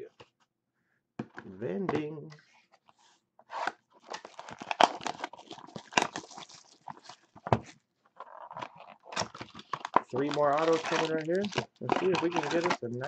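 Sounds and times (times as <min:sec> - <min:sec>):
cardboard box being opened: 0:03.5 - 0:12.8
shrink wrap crinkling and tearing: 0:03.6 - 0:07.5, 0:08.2 - 0:13.0.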